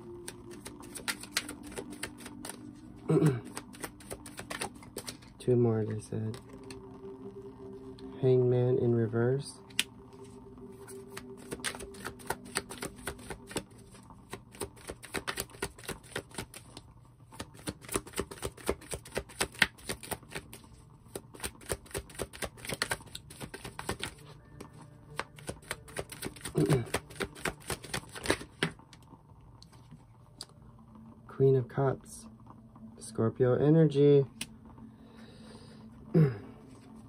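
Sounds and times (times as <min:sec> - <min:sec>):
cards being shuffled: 0:00.2 - 0:05.4, 0:09.6 - 0:16.8, 0:17.4 - 0:28.9.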